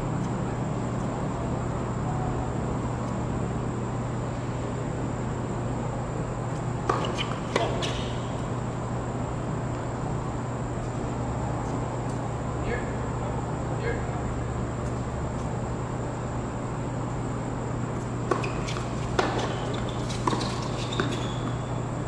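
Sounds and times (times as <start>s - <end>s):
tennis ball struck: 6.8s - 8.2s, 18.3s - 21.6s.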